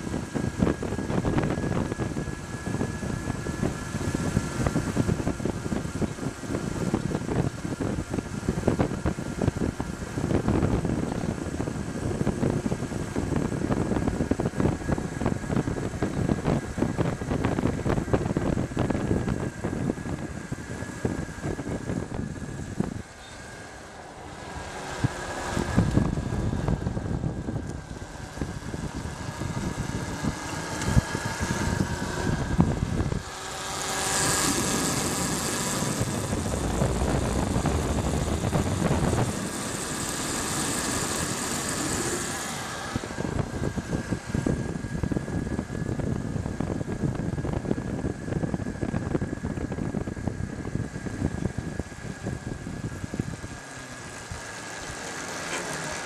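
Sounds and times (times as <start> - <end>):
wind rushing over microphone: 0.0 - 55.2
road noise: 0.0 - 56.0
thin high electric motor whine: 0.0 - 56.0.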